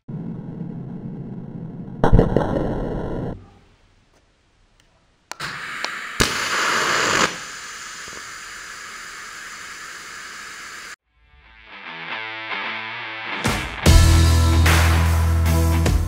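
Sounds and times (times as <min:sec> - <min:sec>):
welding arc hissing: 0:05.3 - 0:11.0
welding arc ignition crackle: 0:05.3 - 0:11.0.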